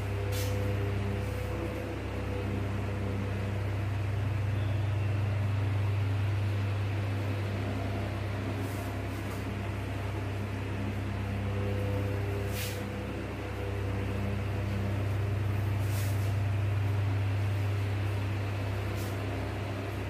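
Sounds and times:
room hum and hiss: 0.0 - 20.0.

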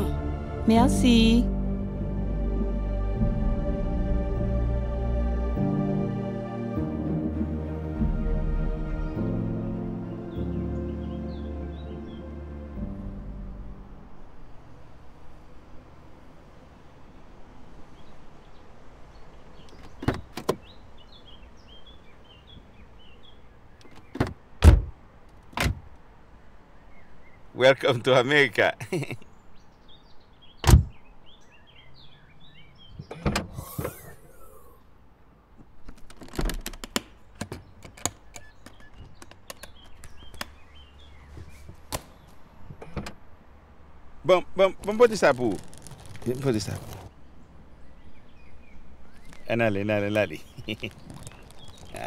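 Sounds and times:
birds chirping: 0.0 - 52.0
car door clicks: 19.7 - 20.7, 23.8 - 25.9, 30.6 - 31.0
car door thud: 24.0 - 25.0, 30.6 - 31.0.

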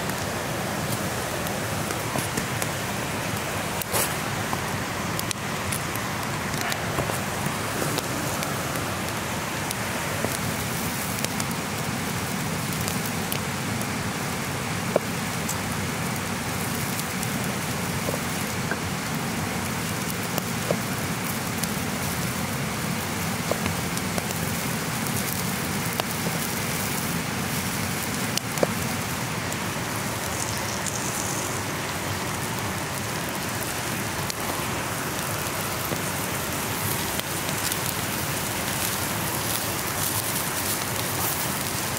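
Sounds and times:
creek flowing: 0.0 - 41.9
wood fire hissing: 0.0 - 41.9.

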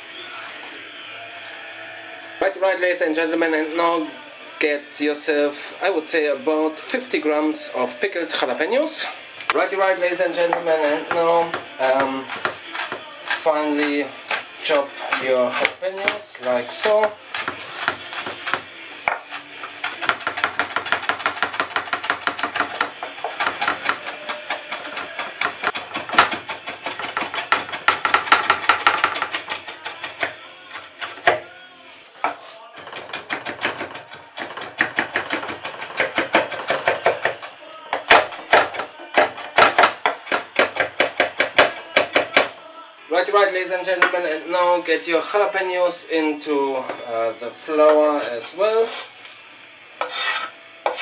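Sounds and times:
knife chopping on wooden board: 10.5 - 14.5, 15.1 - 31.5, 32.2 - 42.5, 50.0 - 51.0.

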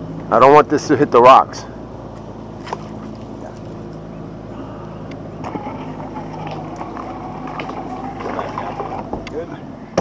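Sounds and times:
electric motor humming: 5.1 - 9.5.

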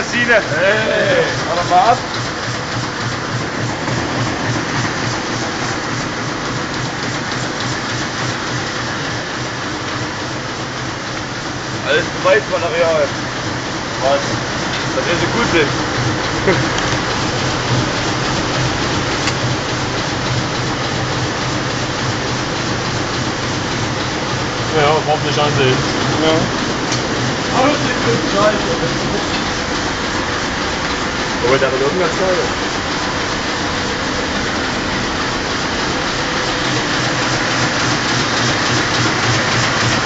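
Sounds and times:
low pulsing beat: 0.0 - 8.7
machine rushing noise: 0.0 - 10.8, 11.4 - 40.0.

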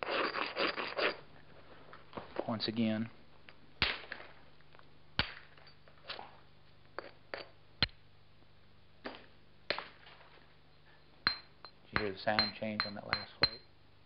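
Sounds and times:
light stone taps: 11.3 - 13.7
stone striking stone ringing clicks: 11.3 - 13.7.

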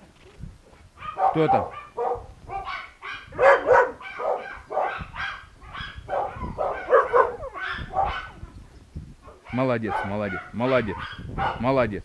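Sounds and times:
puppies yapping: 1.0 - 8.5.

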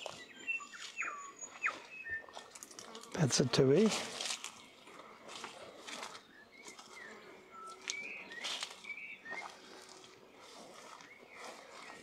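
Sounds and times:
bird whistled notes: 0.4 - 2.2.

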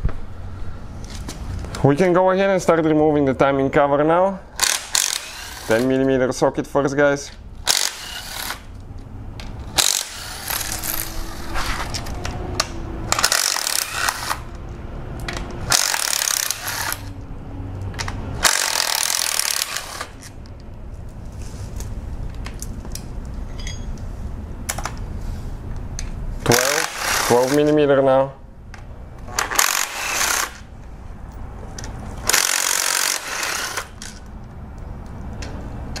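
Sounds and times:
impact driver hammering: 18.4 - 20.1, 29.4 - 30.6, 32.2 - 33.9
metallic clinks of bolts: 23.5 - 24.0.

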